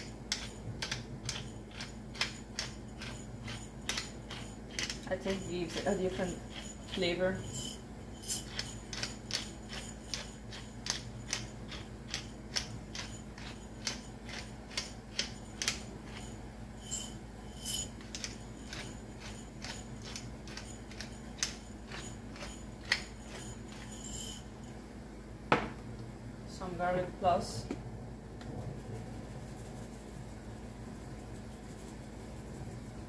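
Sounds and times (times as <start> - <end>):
pepper grinder clicking: 0.3 - 5.0, 8.5 - 15.8.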